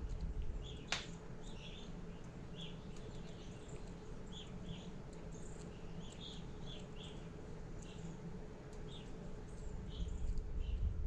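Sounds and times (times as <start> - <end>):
low steady hum: 0.0 - 11.0
faint bird chirps: 0.6 - 8.2.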